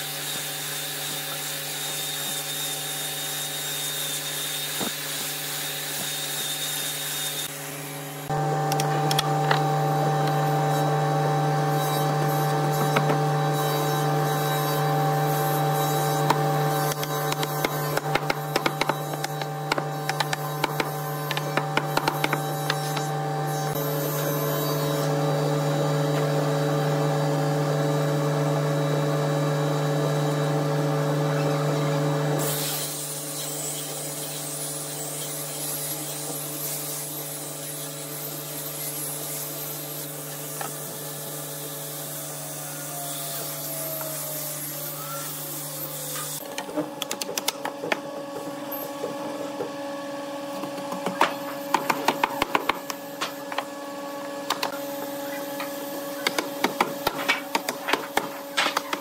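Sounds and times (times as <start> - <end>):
angle grinder whining: 0.0 - 47.1.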